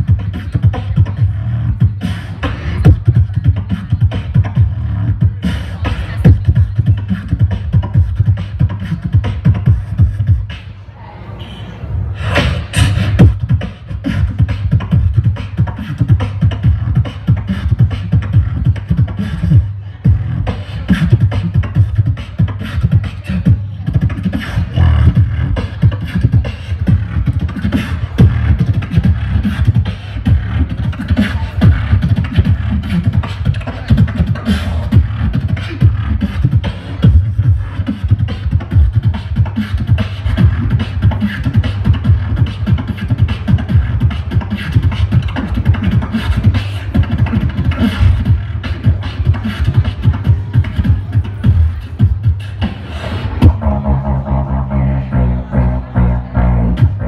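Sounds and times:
person beatboxing: 0:00.0 - 0:11.0, 0:12.1 - 0:57.0.

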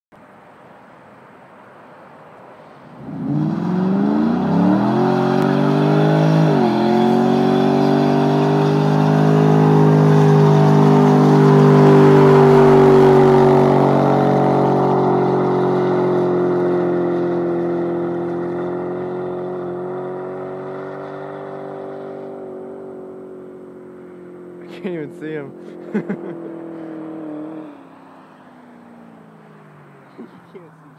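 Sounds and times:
car engine revving hard: 0:03.0 - 0:23.2, 0:24.6 - 0:28.2.

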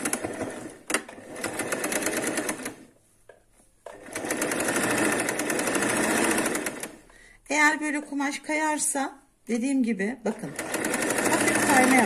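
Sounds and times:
sewing machine stitching: 0:00.0 - 0:02.9, 0:03.9 - 0:07.0, 0:10.3 - 0:12.0.

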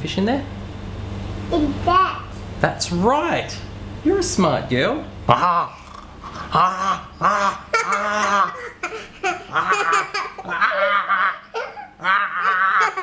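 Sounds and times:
man making playful noises: 0:05.3 - 0:13.0
toddler girl giggling: 0:07.3 - 0:13.0.

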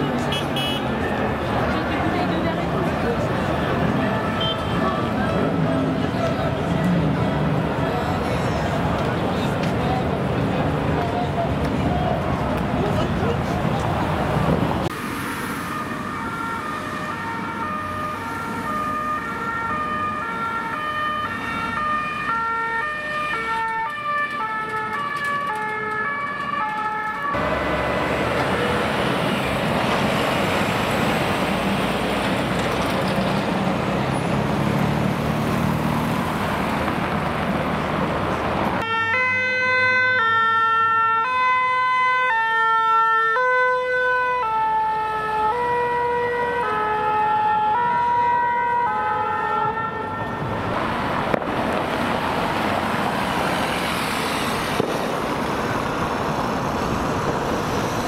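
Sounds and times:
heavy vehicle engine and road noise: 0:00.0 - 0:58.0
fire engine two-tone siren: 0:03.8 - 0:05.4, 0:15.2 - 0:30.6, 0:38.8 - 0:52.1
police two-tone sirens: 0:15.5 - 0:30.0, 0:38.8 - 0:52.6.

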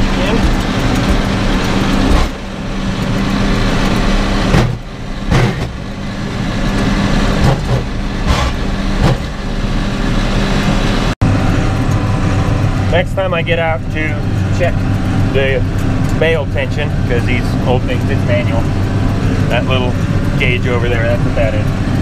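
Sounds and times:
tractor engine running under load: 0:00.0 - 0:22.0.

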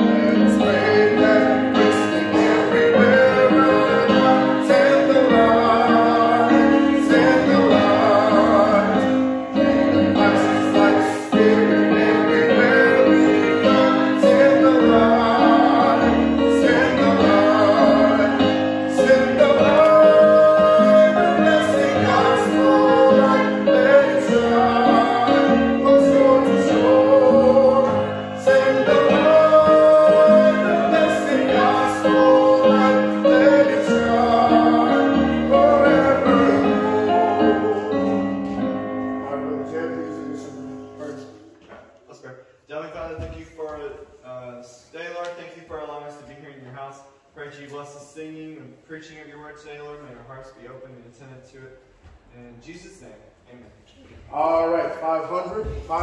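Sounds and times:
song with instrumental backing: 0:00.0 - 0:42.1.

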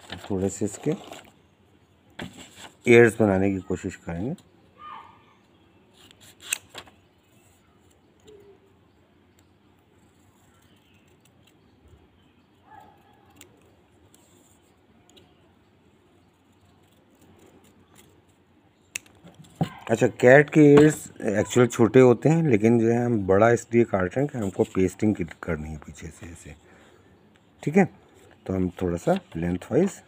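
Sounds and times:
scissors snipping paper: 0:06.0 - 0:06.8, 0:12.7 - 0:14.3.

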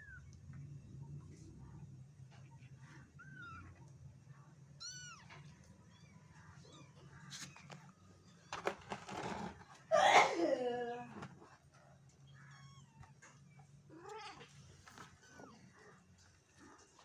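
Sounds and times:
cat meowing: 0:04.8 - 0:08.6, 0:12.2 - 0:15.9
scuffling noises: 0:14.3 - 0:17.0.

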